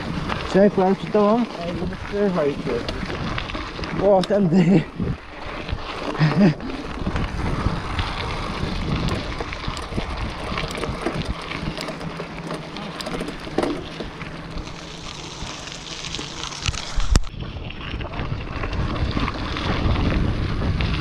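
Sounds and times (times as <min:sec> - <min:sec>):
bike rattling: 0:00.0 - 0:21.0
bike tyres crunching on gravel: 0:00.0 - 0:21.0
wind on microphone: 0:01.6 - 0:04.2, 0:04.8 - 0:12.0, 0:16.6 - 0:21.0.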